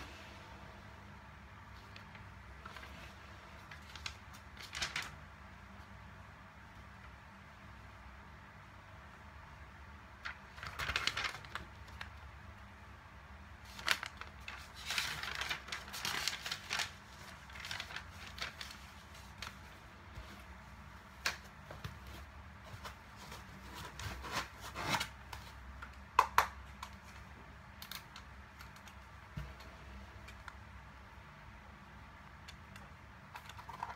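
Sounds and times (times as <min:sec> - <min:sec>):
paper rustling and crinkling: 0:01.7 - 0:05.3, 0:10.2 - 0:12.3, 0:13.6 - 0:25.6.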